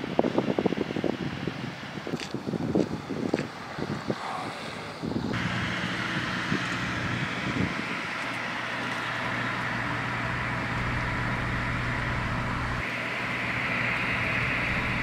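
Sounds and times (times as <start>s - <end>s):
low hum: 4.5s - 15.0s.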